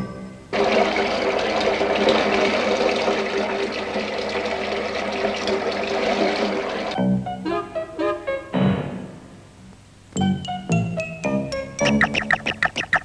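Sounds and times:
water running from a tap: 0.6 - 7.0.

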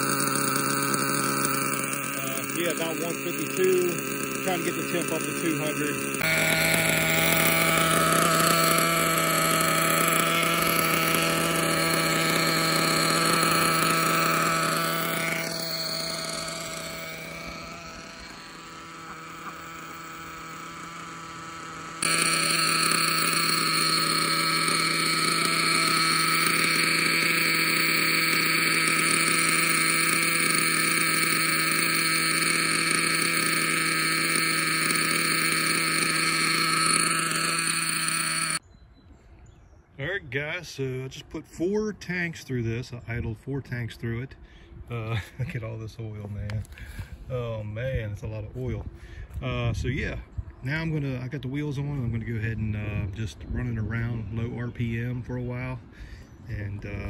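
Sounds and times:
nitro engine idling: 0.0 - 38.6.

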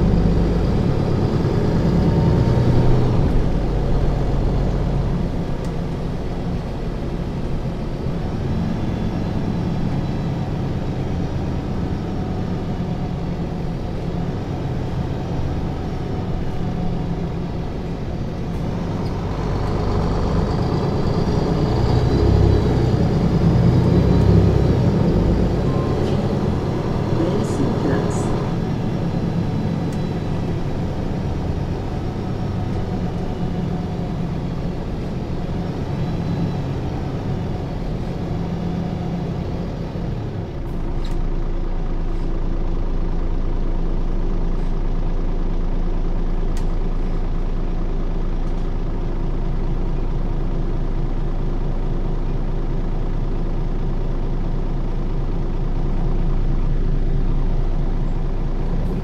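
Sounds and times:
diesel bus engine idling: 0.0 - 59.0.

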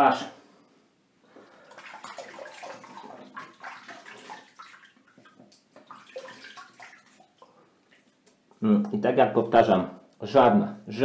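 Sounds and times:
water splashing in a sink: 1.4 - 8.4.

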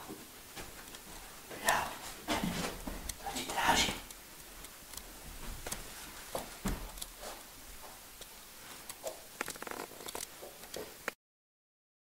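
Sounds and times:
faint taps and knocks: 5.3 - 8.0.

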